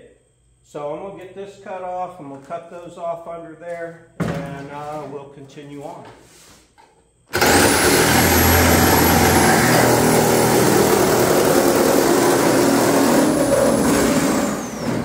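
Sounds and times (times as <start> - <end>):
reciprocating saw cutting steel: 7.4 - 15.0.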